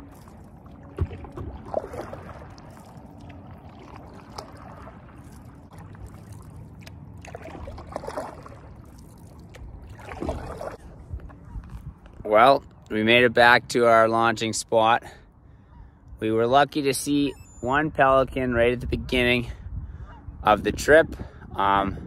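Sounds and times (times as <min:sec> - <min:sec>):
paddle splashing through water: 0:00.0 - 0:11.8.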